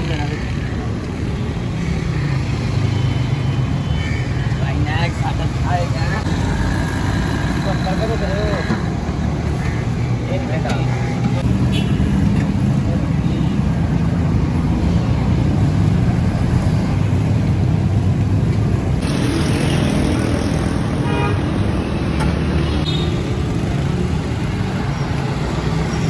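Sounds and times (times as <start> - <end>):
passing cars and motorcycles: 0.0 - 26.0
vehicle horn: 21.0 - 21.4.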